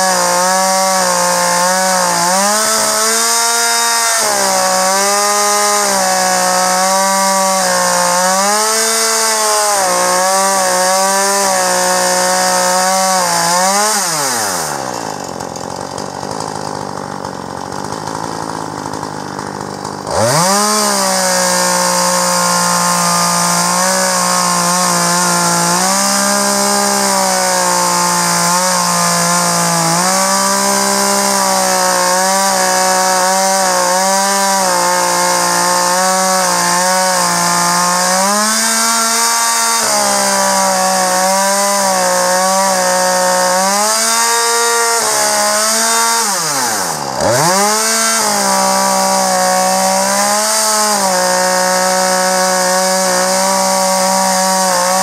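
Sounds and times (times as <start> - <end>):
chainsaw cutting through log: 0.0 - 55.0.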